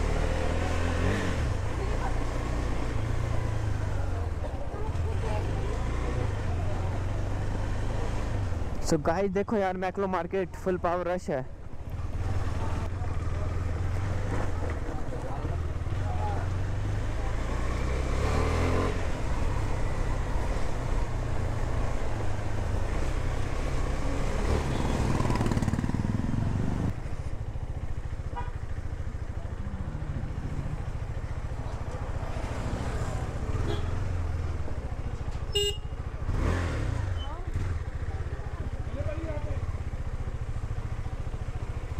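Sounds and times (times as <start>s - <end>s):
motorcycle engine at low revs: 0.0s - 8.8s, 11.6s - 41.9s
horn toot: 35.5s - 36.0s.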